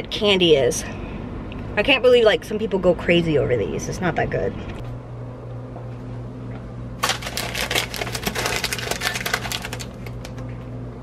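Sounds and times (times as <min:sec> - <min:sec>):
steady low hum: 0:00.0 - 0:11.0
plastic snack bags crinkling: 0:07.0 - 0:10.4.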